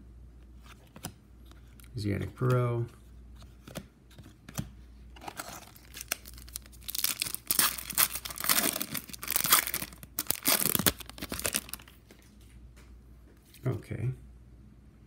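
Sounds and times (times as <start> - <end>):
wrapper tearing and crinkling: 5.2 - 12.0.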